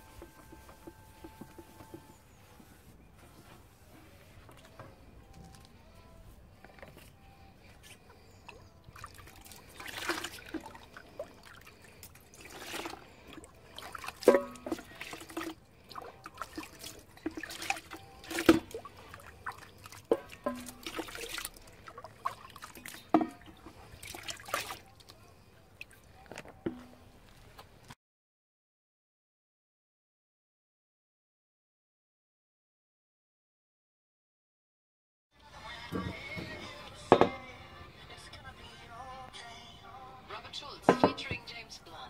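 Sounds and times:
water pouring and splashing: 0:08.9 - 0:25.2
ladle clinking on metal pan: 0:14.2 - 0:15.0, 0:20.1 - 0:21.1.

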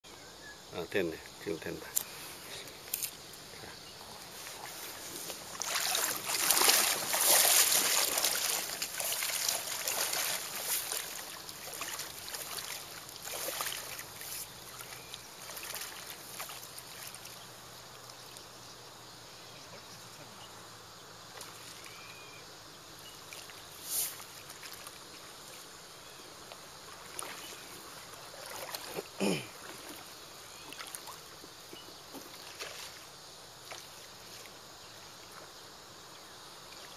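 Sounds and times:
river water splashing and trickling: 0:00.7 - 0:36.9
sharp splashes or knocks: 0:05.5 - 0:14.0.

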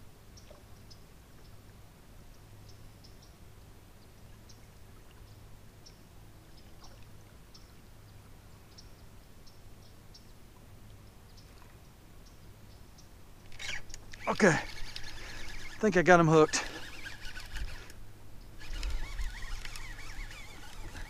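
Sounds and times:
faint high ticks: 0:13.0 - 0:15.8.

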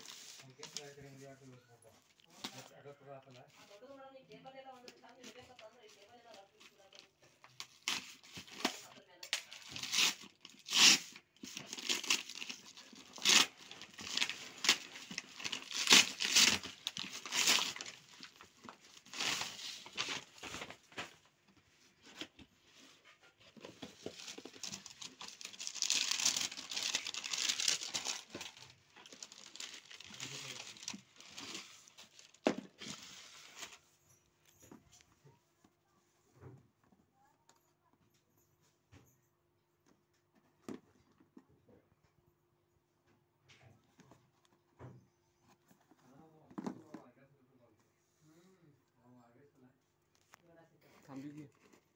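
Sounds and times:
paper and tissue crinkling: 0:00.0 - 0:34.6
paper mailer ripping: 0:09.5 - 0:18.1.

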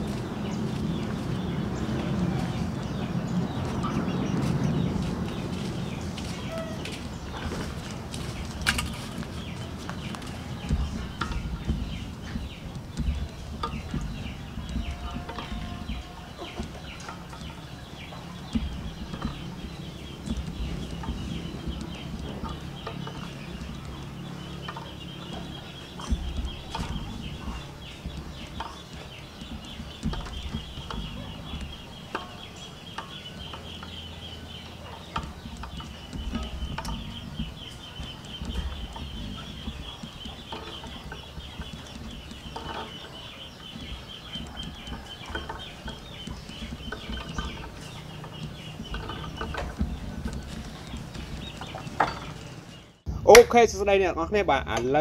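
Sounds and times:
chickens clucking: 0:00.0 - 0:53.0
eggs knocking in a metal pot: 0:10.0 - 0:52.5.

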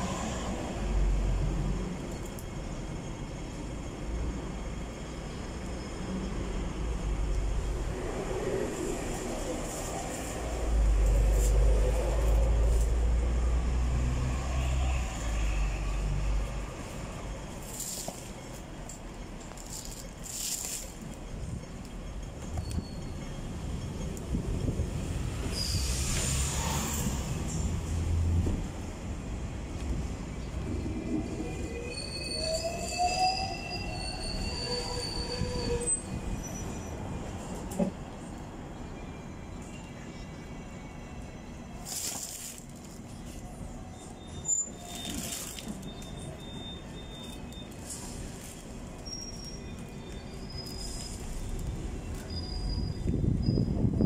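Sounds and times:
road and tram traffic rumble: 0:00.0 - 0:54.0
tram clunk: 0:16.4 - 0:31.4, 0:35.7 - 0:38.6.

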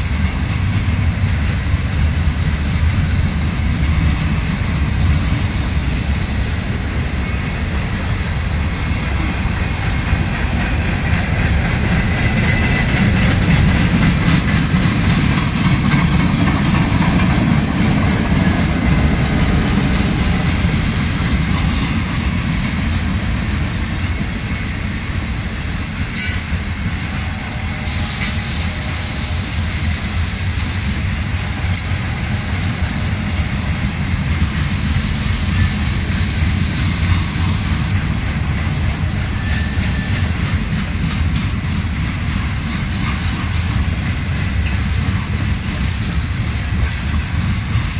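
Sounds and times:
train rumble and wheel clacks: 0:00.0 - 0:47.9
high wheel squeals: 0:34.5 - 0:38.1, 0:39.2 - 0:40.5.

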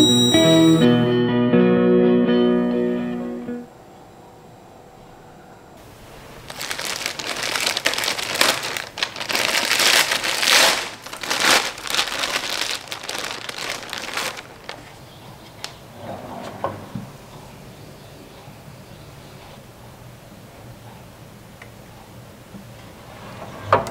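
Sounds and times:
plastic bag crinkling: 0:05.8 - 0:15.0.

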